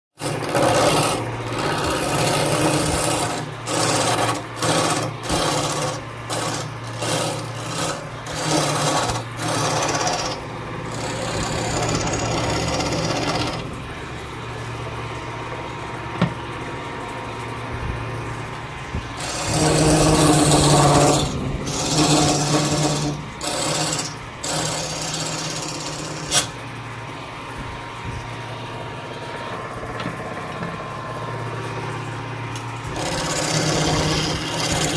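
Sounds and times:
turning tool scraping wood: 0.2 - 13.8, 18.8 - 26.6, 32.8 - 34.9
wood lathe humming: 0.2 - 17.4, 18.0 - 27.5, 28.2 - 34.9.

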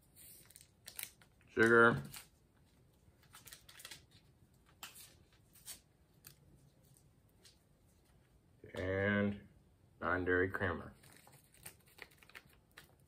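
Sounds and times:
paper packet rustling and crackling: 0.0 - 8.2, 10.9 - 13.0.

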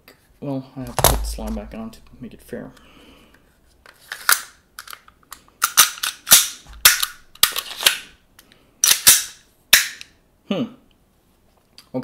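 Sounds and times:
pistol slide clacking: 4.2 - 8.1, 8.8 - 10.1.

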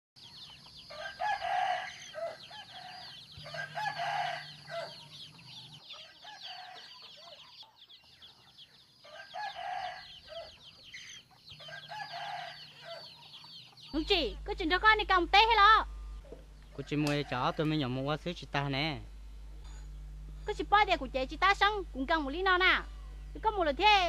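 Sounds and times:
chickens clucking: 0.2 - 15.6, 16.2 - 18.0
high peeping chatter: 0.2 - 24.0
rooster crowing: 0.9 - 7.5, 9.0 - 10.7, 11.6 - 13.4, 16.7 - 17.9.

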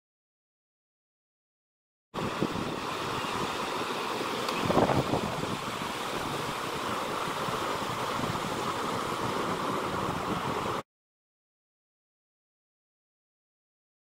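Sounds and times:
surf breaking on beach: 2.2 - 10.8
wind on microphone: 2.2 - 10.8.

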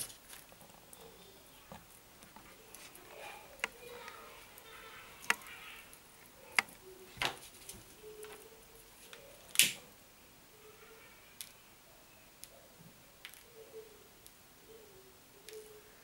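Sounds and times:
wire insulation snapping clicks: 9.5 - 9.8.

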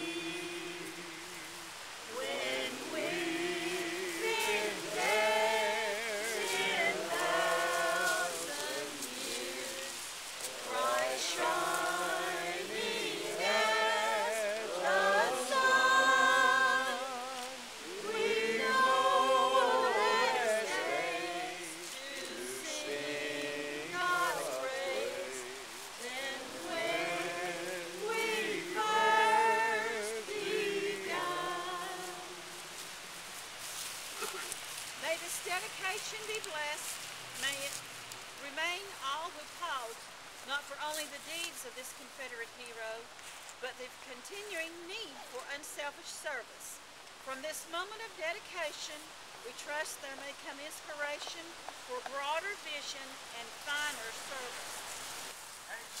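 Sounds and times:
voices singing long notes: 0.0 - 33.0.

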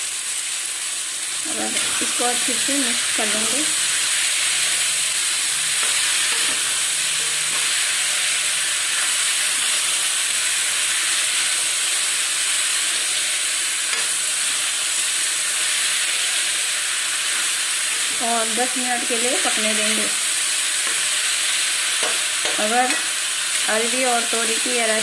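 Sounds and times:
vegetables sizzling in oil: 0.0 - 25.0
spatula stirring: 4.0 - 9.8.

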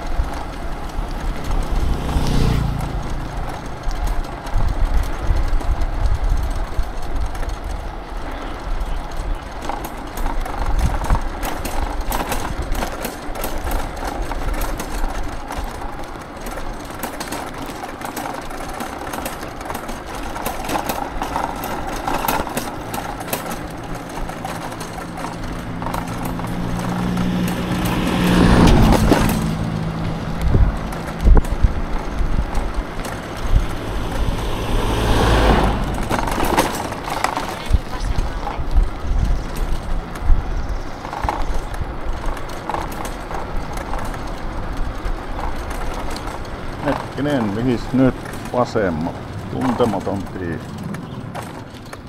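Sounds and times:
passing vehicle engine: 0.0 - 11.2, 19.7 - 52.0
road noise: 0.0 - 52.0
wind on microphone: 26.5 - 42.4.

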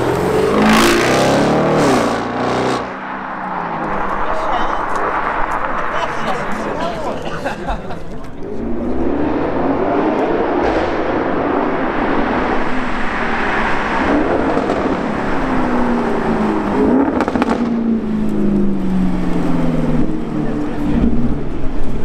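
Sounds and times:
car engine accelerating: 0.0 - 6.7, 8.4 - 22.0.

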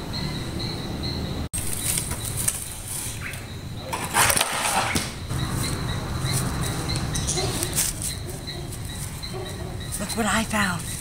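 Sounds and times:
insects chirping: 0.0 - 11.0
low outdoor rumble: 5.1 - 11.0.

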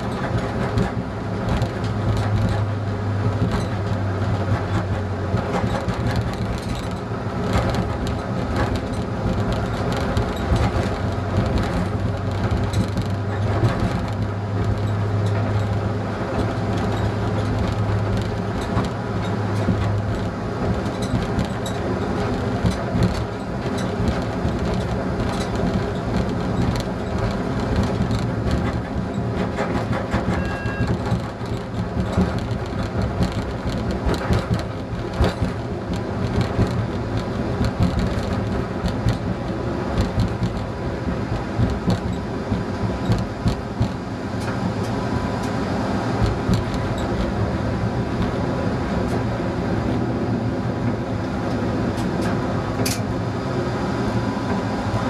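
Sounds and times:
diesel railcar engine hum: 0.0 - 55.0
wheels rumbling and clicking on rails: 0.0 - 55.0
short high beep: 30.4 - 31.0.

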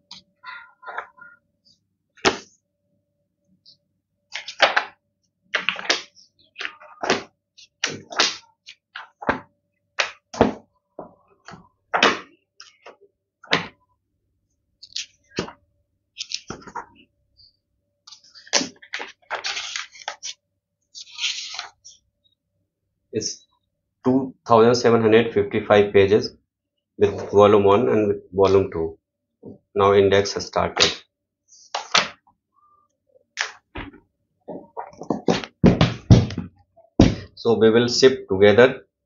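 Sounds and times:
book pages turning: 4.3 - 4.9, 14.8 - 15.5, 16.2 - 17.0, 18.1 - 22.0.

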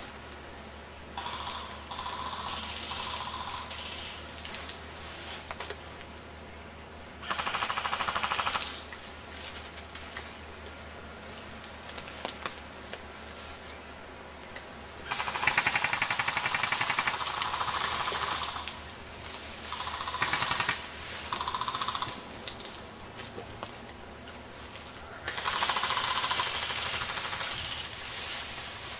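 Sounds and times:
airsoft guns firing full auto: 1.2 - 4.2, 7.2 - 8.9, 15.1 - 18.8, 19.7 - 22.2, 25.3 - 28.1.

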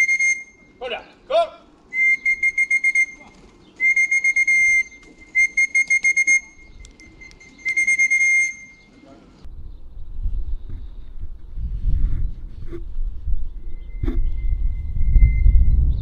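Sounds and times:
high-pitched whistle blasts: 0.0 - 0.8, 1.9 - 9.0, 13.8 - 16.0.

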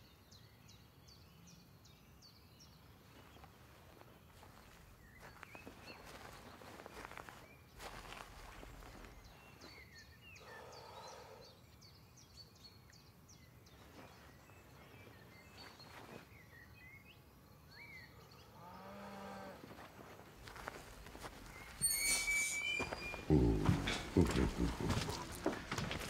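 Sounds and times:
small birds chirping: 0.0 - 26.0
distant animal calling: 21.4 - 26.0.

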